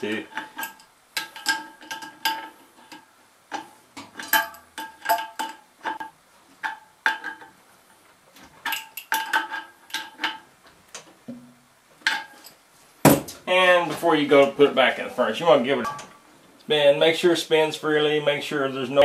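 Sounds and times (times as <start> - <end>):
wrench clinking on metal: 0.3 - 7.5
sheet-metal housing ringing: 15.7 - 16.2.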